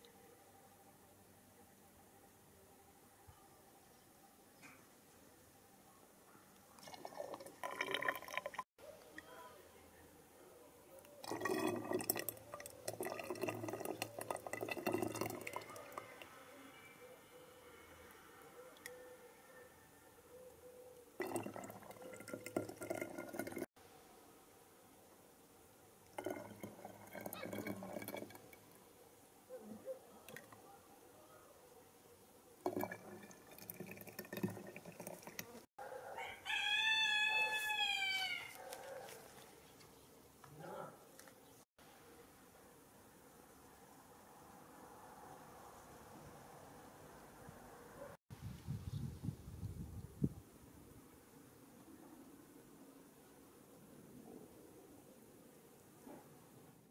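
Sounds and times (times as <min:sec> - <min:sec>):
juice gurgling and dripping: 0:06.8 - 0:08.6, 0:11.2 - 0:16.3, 0:21.2 - 0:23.7, 0:26.0 - 0:28.8, 0:32.6 - 0:35.7
rooster crowing: 0:18.8 - 0:20.3, 0:35.8 - 0:38.8
small crackles: 0:37.6 - 0:41.6.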